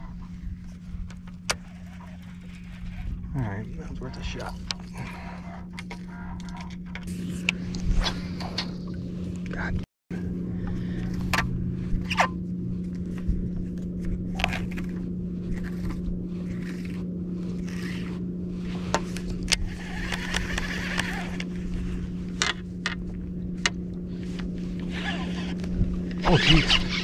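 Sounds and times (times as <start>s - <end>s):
electric trolling motor hum: 0.0s - 27.0s
fishing reel clicks and scrapes: 19.5s - 21.5s, 26.2s - 27.0s.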